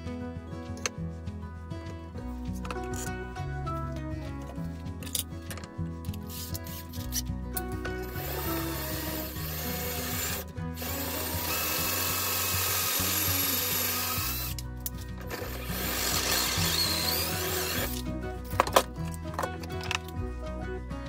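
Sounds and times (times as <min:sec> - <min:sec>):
background music: 0:00.0 - 0:21.0
power drill boring into wood: 0:08.0 - 0:14.6, 0:15.2 - 0:18.0.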